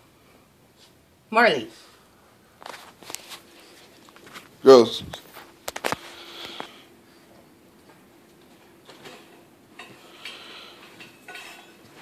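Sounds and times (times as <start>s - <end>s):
faint steady hum: 0.0s - 12.0s
faint rustles on carpet: 1.8s - 7.4s.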